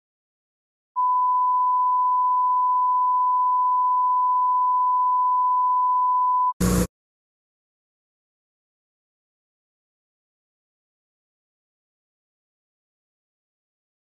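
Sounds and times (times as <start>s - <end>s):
pure test tone beep: 1.0s - 6.6s.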